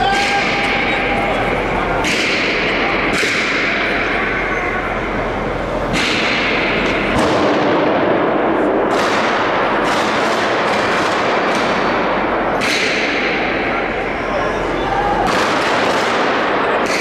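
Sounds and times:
loud continuous din: 0:00.0 - 0:17.0
gunshots with long echo: 0:06.0 - 0:13.8, 0:15.2 - 0:17.0.

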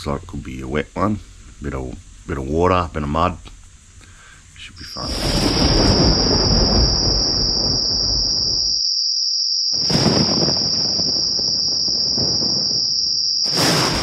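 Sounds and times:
high-pitched insect drone: 0:04.8 - 0:14.0.

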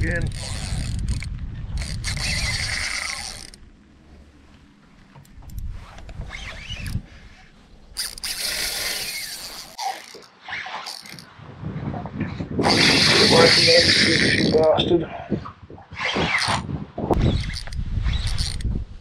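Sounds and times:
fishing reel winding: 0:00.0 - 0:03.6, 0:08.0 - 0:11.3, 0:12.6 - 0:14.6, 0:17.2 - 0:18.7.

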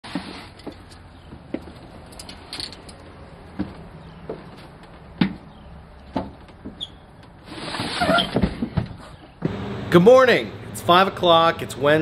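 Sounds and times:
low steady hum: 0:09.4 - 0:12.0.

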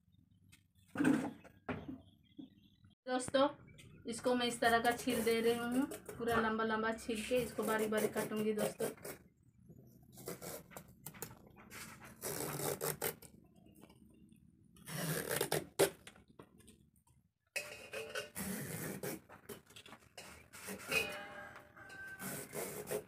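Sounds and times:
vegetable peeler scraping skin: 0:04.8 - 0:06.1, 0:07.4 - 0:09.2, 0:10.2 - 0:10.8, 0:12.1 - 0:13.3, 0:14.8 - 0:16.0, 0:18.4 - 0:19.2, 0:22.1 - 0:23.0.

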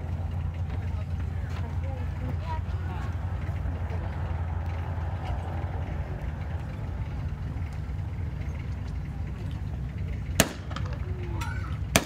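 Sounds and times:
steady low rumble: 0:00.0 - 0:12.0
rifle shot: 0:10.4 - 0:10.9.

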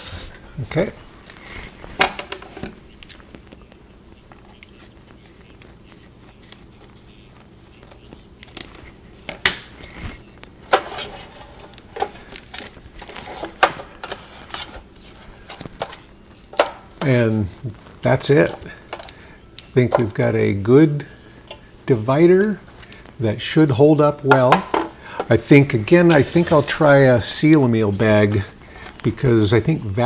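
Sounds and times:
scissors cutting: 0:04.2 - 0:08.8
plastic bag rustling and crinkling: 0:09.9 - 0:16.1.

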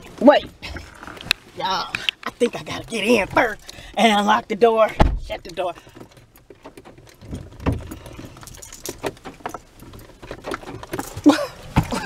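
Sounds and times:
clicks and rattles: 0:05.2 - 0:12.0.

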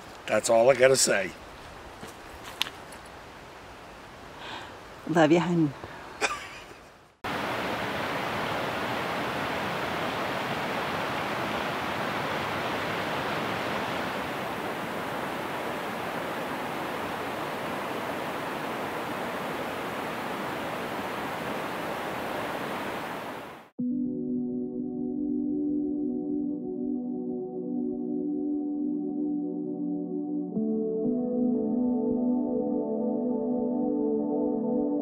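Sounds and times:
running water rushing: 0:07.2 - 0:23.7.

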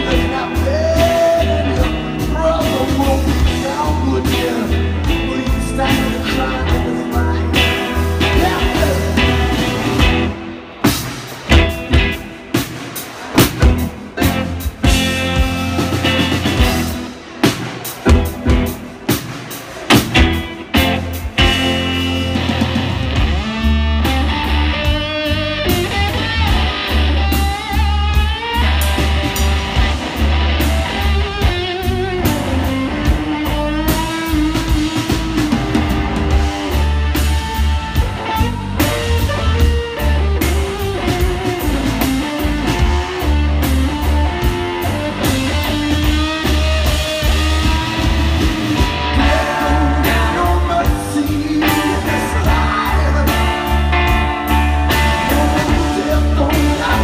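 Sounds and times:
man singing: 0:00.0 - 0:10.2, 0:49.1 - 0:57.0
blues-rock band playing: 0:00.0 - 0:57.0
lead electric guitar: 0:00.0 - 0:57.0.

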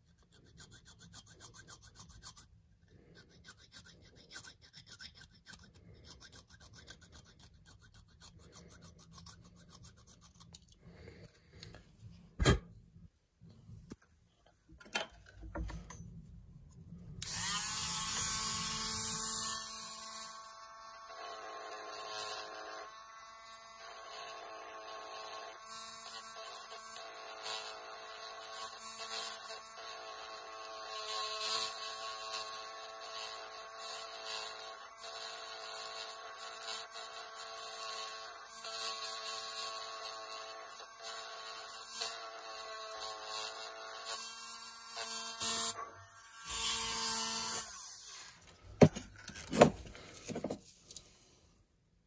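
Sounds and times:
rotary tool grinding metal: 0:00.0 - 0:10.8, 0:23.7 - 0:48.4.

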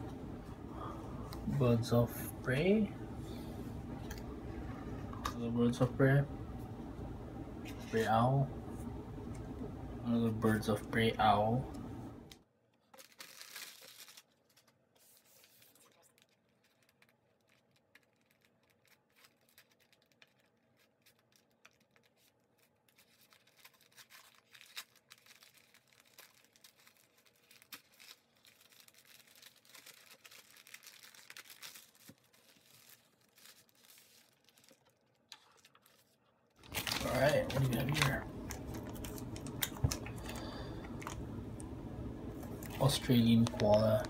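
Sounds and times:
paper and foam packing rustling: 0:12.8 - 0:41.2, 0:42.5 - 0:44.0.

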